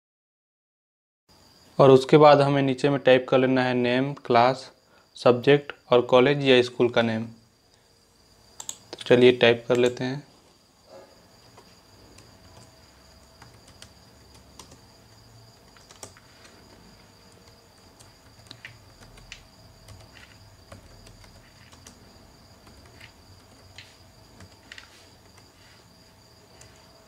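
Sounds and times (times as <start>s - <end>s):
keyboard keys clicking: 8.6s - 9.1s, 11.4s - 25.6s.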